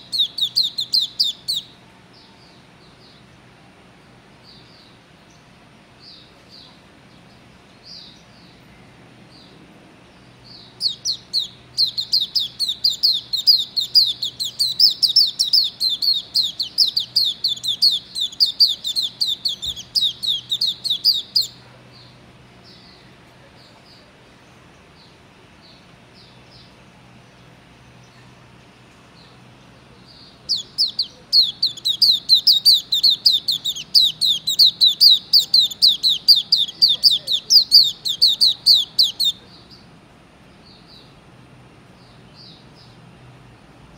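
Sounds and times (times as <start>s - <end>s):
bird rapid high twittering: 0.0s - 1.7s, 10.6s - 21.6s, 30.3s - 39.4s
bird high chirps: 0.0s - 3.0s, 10.4s - 23.0s, 30.0s - 39.9s.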